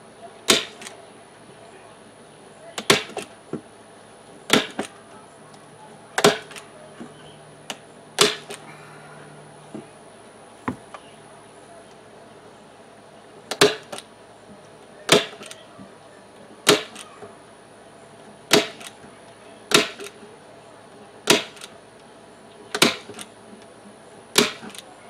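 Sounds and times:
staple gun snapping: 6.2s - 6.7s, 21.3s - 21.7s, 22.7s - 23.3s, 24.4s - 24.8s.

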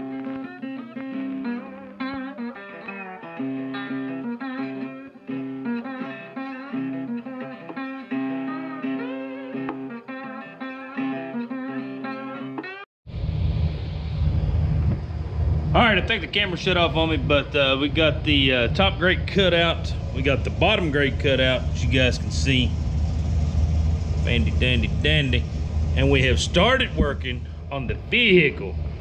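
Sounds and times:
guitar music: 0.0s - 12.9s, 15.6s - 29.0s
low rumble: 13.1s - 29.0s.

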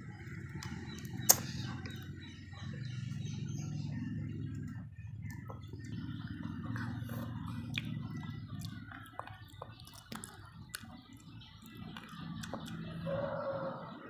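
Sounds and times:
low steady hum: 0.0s - 14.0s
child chewing noodles: 4.6s - 13.0s.

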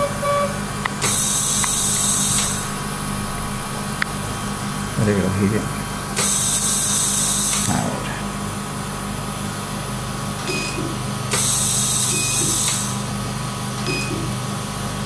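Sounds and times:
machine hum: 0.0s - 15.0s
laser cutting hiss: 0.9s - 4.0s, 6.1s - 8.4s, 10.5s - 13.1s
short beeps: 10.5s - 10.8s, 12.1s - 12.6s, 13.9s - 14.3s.

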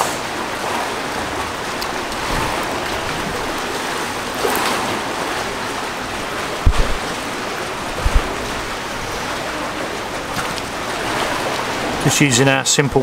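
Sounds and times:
sea and wind rushing: 0.0s - 13.0s
loud low thumps: 6.6s - 7.2s, 7.8s - 8.7s.

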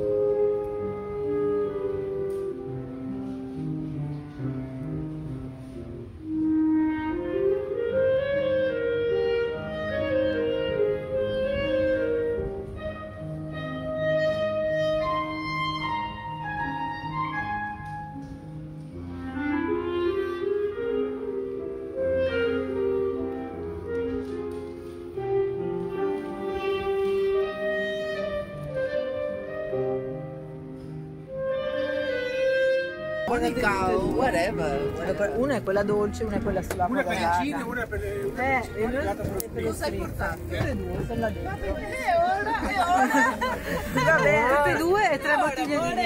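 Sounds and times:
instrumental background music: 0.0s - 46.0s.

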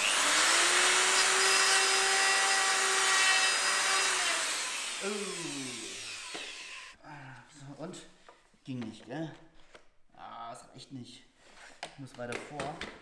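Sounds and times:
wood router whining: 0.0s - 7.0s.

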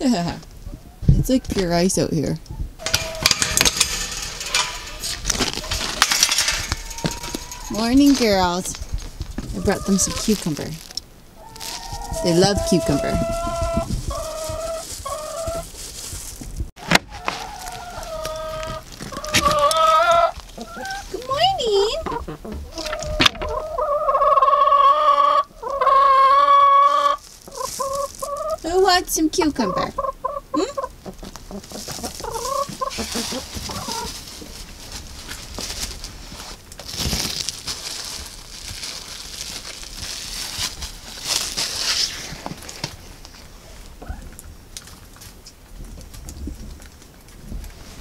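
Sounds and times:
rustling and scuffling in straw: 2.8s - 21.9s, 23.8s - 28.9s, 31.2s - 44.1s
hens making drawn-out calls: 11.4s - 15.7s, 17.1s - 28.6s, 29.6s - 34.2s.

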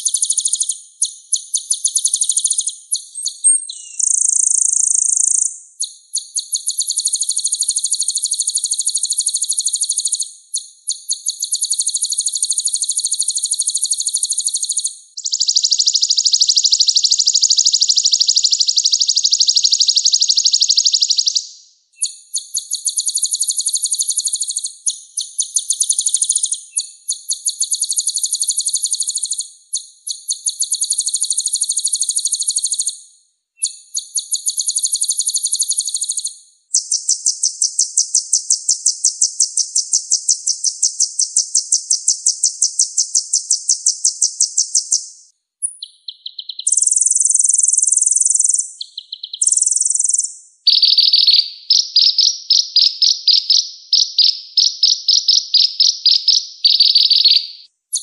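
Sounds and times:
bird song high rapid trills: 10.9s - 21.4s.

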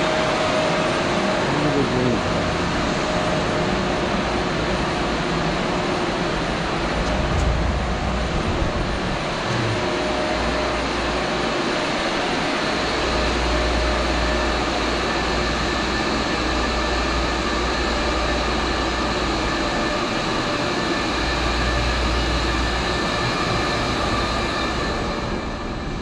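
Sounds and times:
machinery running: 6.9s - 26.0s
faint steady hums: 7.0s - 11.1s.

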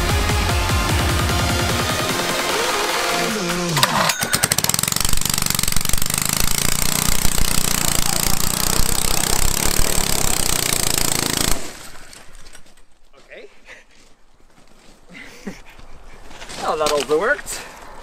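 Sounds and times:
electronic music: 0.0s - 4.1s
small engine starting and running: 0.9s - 12.5s.

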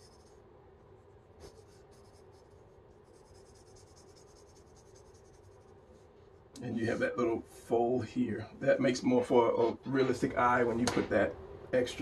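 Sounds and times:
pencil scratching on paper: 0.0s - 0.4s, 1.3s - 5.8s.

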